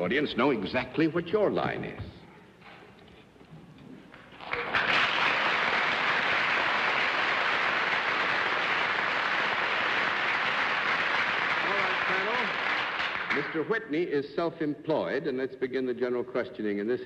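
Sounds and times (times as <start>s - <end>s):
audience applauding: 4.4s - 13.7s.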